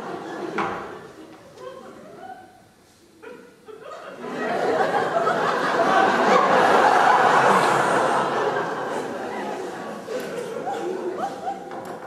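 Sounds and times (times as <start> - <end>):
audience laughing: 3.7 - 11.9.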